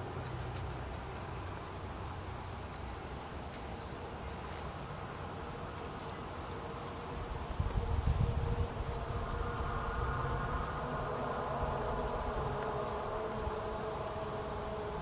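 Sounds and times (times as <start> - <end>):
insects droning: 0.0 - 15.0
wind buffeting microphone: 7.2 - 13.8.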